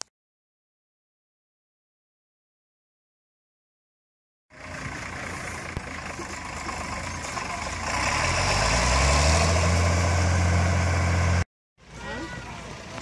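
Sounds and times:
tractor engine running: 0:04.5 - 0:13.0.

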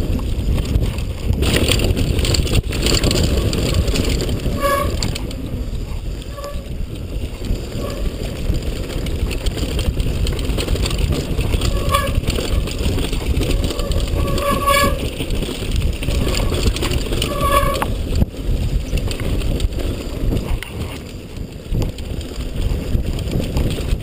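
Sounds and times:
bike rattling over rough ground: 0:00.0 - 0:24.0
wind buffeting microphone: 0:00.0 - 0:24.0
high-pitched squeaks: 0:03.6 - 0:05.3, 0:06.3 - 0:06.8, 0:11.4 - 0:15.2, 0:16.1 - 0:18.0.

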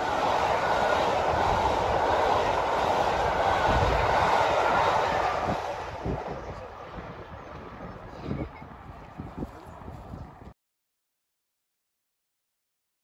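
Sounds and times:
train wheels rushing on track: 0:00.0 - 0:10.2.

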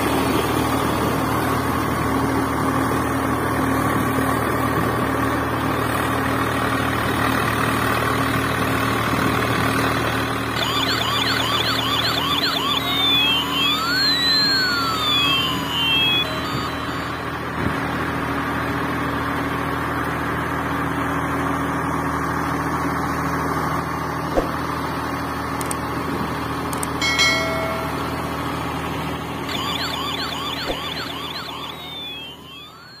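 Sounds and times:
engine-like drone: 0:00.0 - 0:33.0
electronic whistles: 0:10.5 - 0:18.1, 0:27.0 - 0:28.3, 0:29.5 - 0:33.0
short chime: 0:27.0 - 0:28.6.

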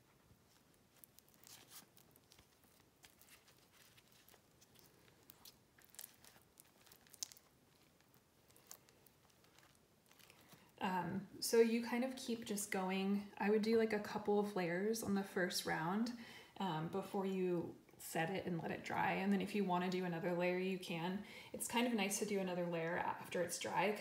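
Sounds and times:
paper rustling and crinkling: 0:00.3 - 0:10.8.

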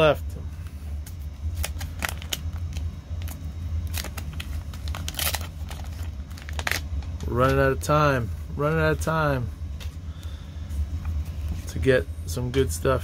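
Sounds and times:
steady low hum: 0:00.0 - 0:13.0
paper wrapper crackling and tearing: 0:01.5 - 0:06.9.

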